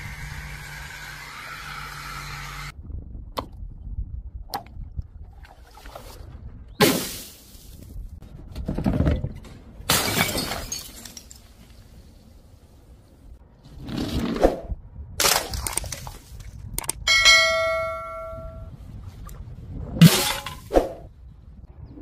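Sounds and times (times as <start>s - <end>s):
objects crashing and breaking: 8.7s - 11.7s
clear multi-tone ringing: 17.1s - 18.7s.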